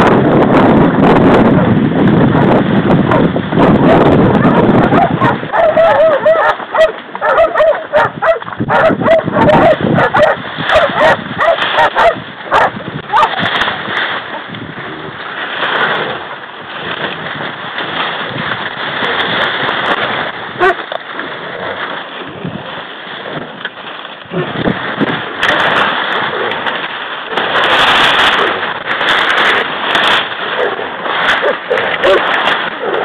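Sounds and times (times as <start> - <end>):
fronds scraping and rustling: 0.4 - 33.0.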